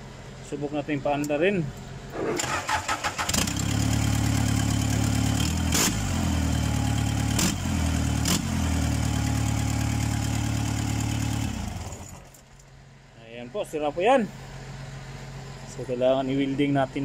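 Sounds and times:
forklift engine cranking: 2.1s - 3.8s
forklift engine idling: 8.8s - 13.0s.

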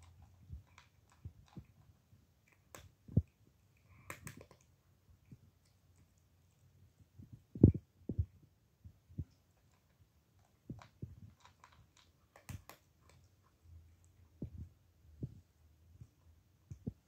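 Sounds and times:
cat crunching dry kibble: 0.0s - 4.8s, 9.3s - 14.4s.

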